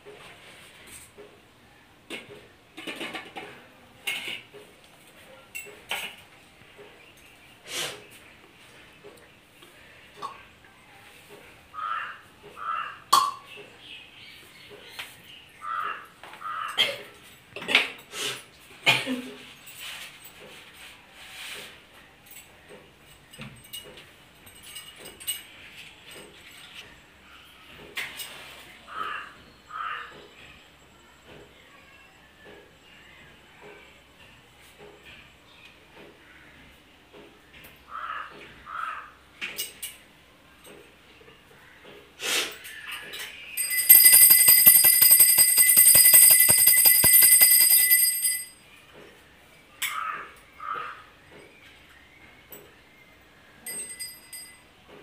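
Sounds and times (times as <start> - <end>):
bangles clinking: 43.6 - 48.6, 53.7 - 54.6
hand bell ringing rapidly: 43.6 - 48.6, 53.7 - 54.6.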